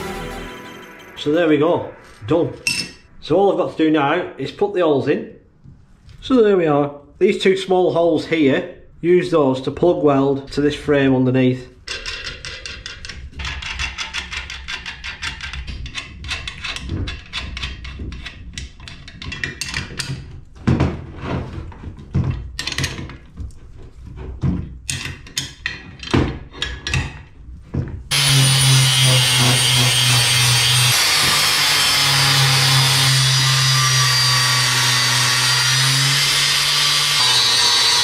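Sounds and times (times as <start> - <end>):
angle grinder cutting steel: 28.1 - 38.0.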